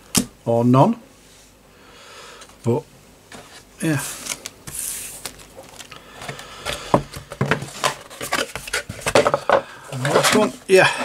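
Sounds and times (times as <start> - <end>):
plastic bags rustling: 3.8 - 11.0.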